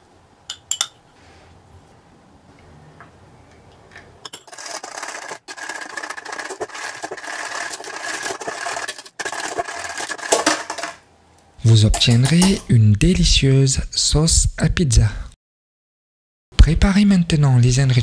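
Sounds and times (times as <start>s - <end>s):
fork clinking on glass: 0.5s - 1.0s
fork scraping glass bowl: 4.3s - 11.0s.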